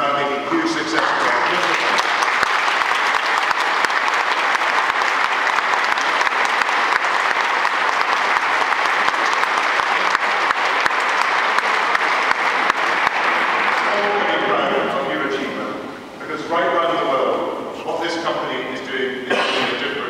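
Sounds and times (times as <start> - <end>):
people applauding: 0.7 - 15.0.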